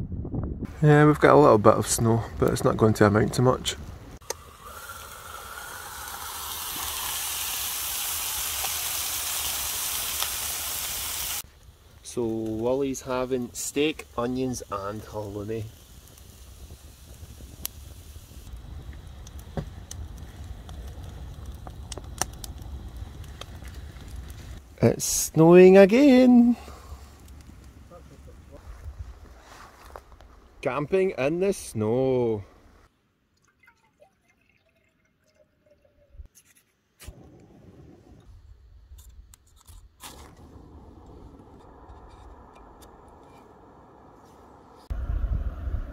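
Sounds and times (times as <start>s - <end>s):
campfire crackling and popping: 2.1s - 30.7s, 37.0s - 44.9s
steady hiss: 4.2s - 29.8s
water trickling into a cup: 33.3s - 36.3s.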